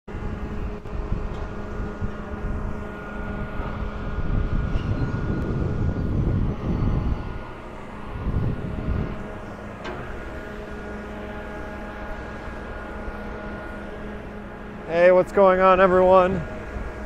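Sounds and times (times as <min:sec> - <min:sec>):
wind on microphone: 0:00.1 - 0:10.4
excavator engine drone: 0:00.1 - 0:17.0.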